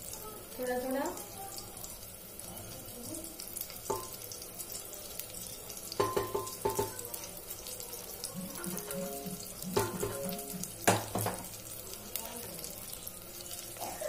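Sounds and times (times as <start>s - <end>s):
batter sizzling: 0.0s - 14.0s
spatula tapping metal rim: 8.5s - 11.4s.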